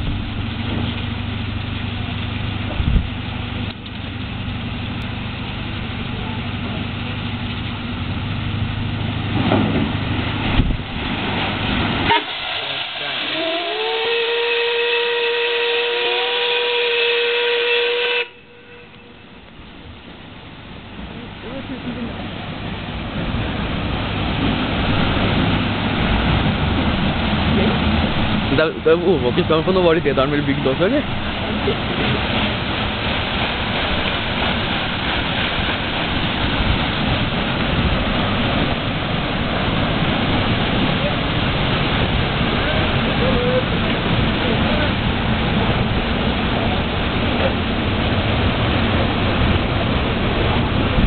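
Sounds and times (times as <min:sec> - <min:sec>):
paddle wheel churning water: 0:00.0 - 0:51.0
steam hissing: 0:09.0 - 0:16.7
steam whistle blast: 0:12.0 - 0:19.0.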